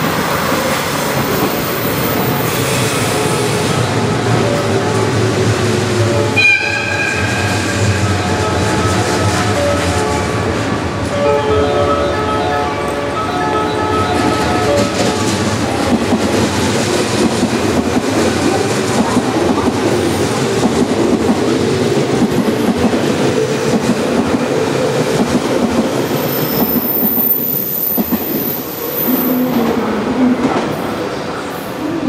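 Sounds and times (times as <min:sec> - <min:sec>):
train wheels clattering on rails: 0:13.5 - 0:30.9.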